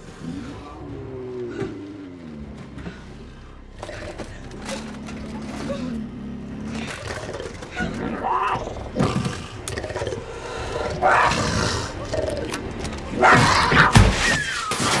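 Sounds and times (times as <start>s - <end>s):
cougar snarling and roaring: 3.6s - 14.1s.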